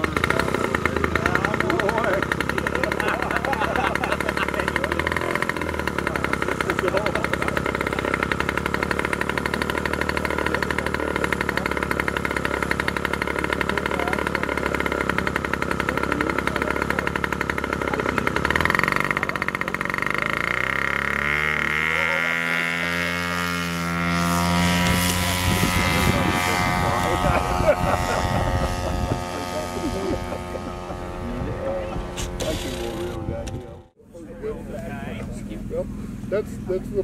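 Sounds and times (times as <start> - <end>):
model plane engine: 0.0 - 37.0.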